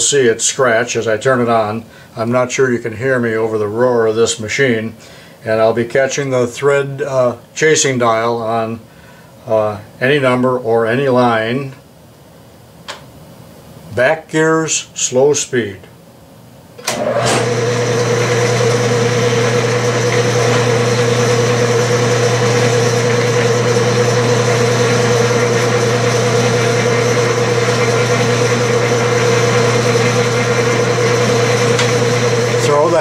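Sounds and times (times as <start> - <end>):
lathe switch click: 16.8 - 17.5
metal lathe running: 16.9 - 33.0.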